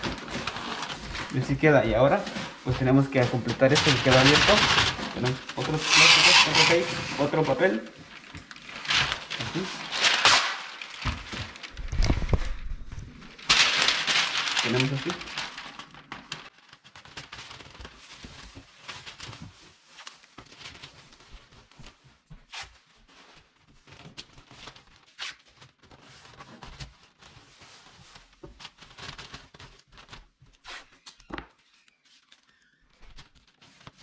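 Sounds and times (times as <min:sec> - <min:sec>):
paper rustling and crinkling: 0:00.0 - 0:34.0
tape ripping off roll: 0:03.7 - 0:07.5, 0:08.4 - 0:16.5.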